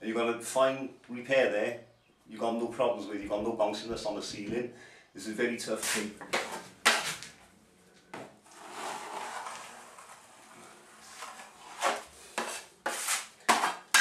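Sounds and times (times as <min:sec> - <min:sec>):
blade scrapes and knocks: 0:05.8 - 0:07.3, 0:08.5 - 0:14.0
blade scraping joint compound: 0:05.8 - 0:07.4, 0:08.1 - 0:14.0.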